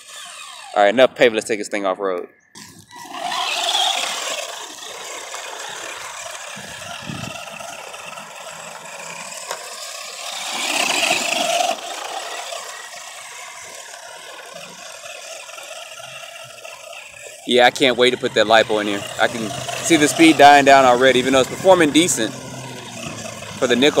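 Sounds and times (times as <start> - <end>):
toy truck electric motor whining: 0.0 - 1.4, 2.5 - 24.0.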